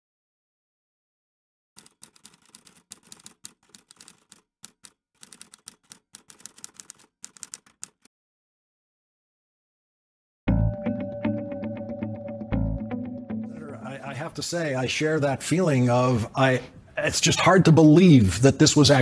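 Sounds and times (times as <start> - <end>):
keyboard key clicks: 1.8 - 8.1.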